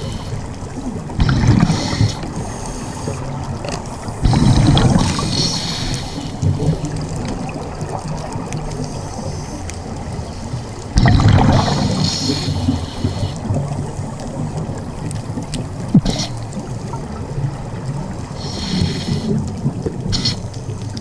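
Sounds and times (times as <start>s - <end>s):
regulator breathing underwater: 1.2s - 3.4s, 4.1s - 6.5s, 11.4s - 13.5s, 18.4s - 19.5s, 20.1s - 20.6s
air bubbling underwater: 11.0s - 12.1s.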